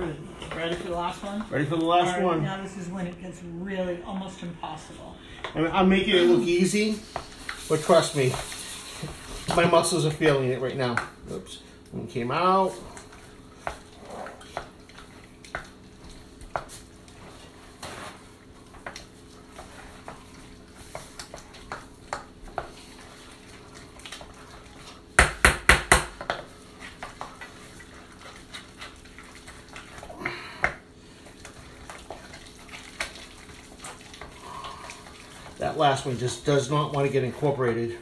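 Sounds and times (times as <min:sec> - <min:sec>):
wooden spoon beating dough in pan: 0:13.0 - 0:34.4
spoon knocking against pan: 0:25.2 - 0:26.4.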